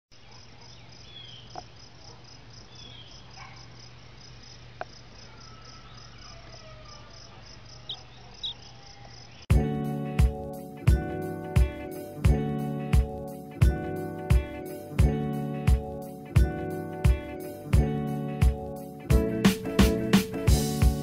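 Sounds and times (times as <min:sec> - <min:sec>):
insects chirping: 0:00.1 - 0:09.5
guitar music: 0:09.5 - 0:21.0.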